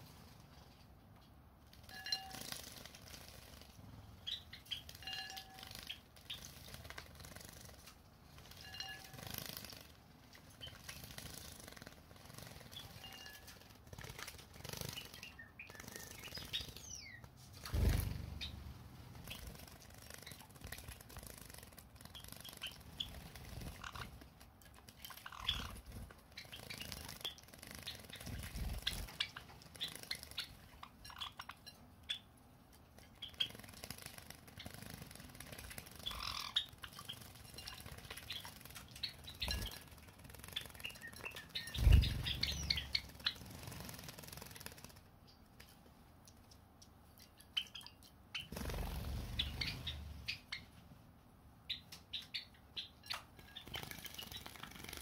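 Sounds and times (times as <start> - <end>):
bird chirps: 4.2 - 6.6, 14.6 - 20.4, 25.1 - 32.4, 33.1 - 33.7, 36.0 - 43.4, 47.2 - 50.8, 51.6 - 55.0
birds splashing in water: 17.7 - 31.4, 33.1 - 45.1, 47.6 - 50.4.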